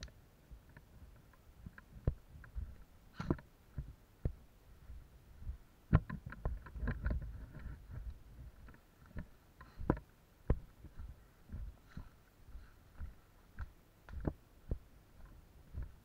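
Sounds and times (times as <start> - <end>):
clothing rubbing on microphone: 4.8 - 10.0.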